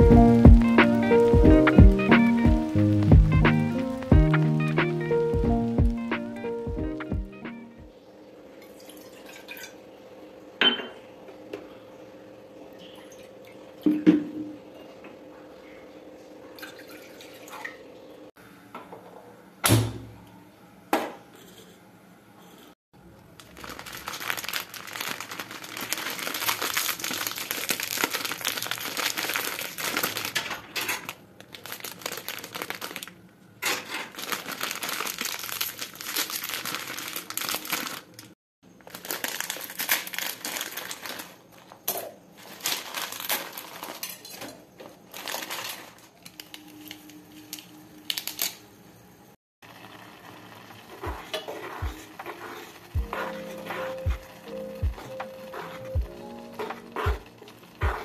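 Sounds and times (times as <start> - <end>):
plastic wrapper crinkling: 23.2 - 48.6.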